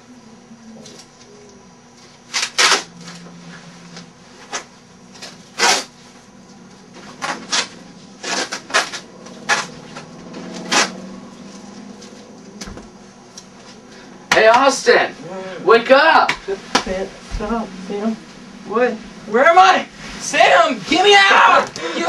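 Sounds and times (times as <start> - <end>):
adhesive tape ripping off roll: 2.3 - 2.9, 5.6 - 5.9, 10.6 - 11.0.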